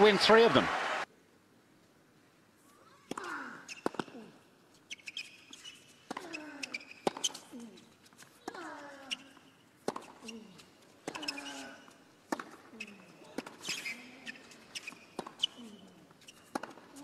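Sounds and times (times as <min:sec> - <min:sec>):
racquet striking tennis ball: 0:03.1 - 0:04.2, 0:06.1 - 0:07.4, 0:09.3 - 0:10.4, 0:11.0 - 0:11.6, 0:12.3 - 0:17.0
shoe squeaks: 0:03.6 - 0:04.0, 0:04.8 - 0:11.9, 0:12.7 - 0:17.0.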